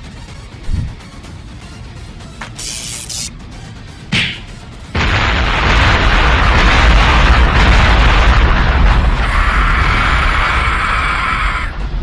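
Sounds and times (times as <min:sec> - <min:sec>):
bright hissing: 0:02.4 - 0:03.3
explosion-like bass rumble: 0:04.9 - 0:12.0.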